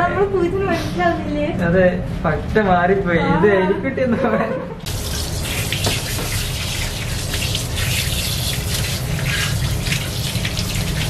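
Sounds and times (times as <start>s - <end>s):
hose water rushing into bathtub: 4.9s - 11.0s
water splashes: 4.9s - 11.0s.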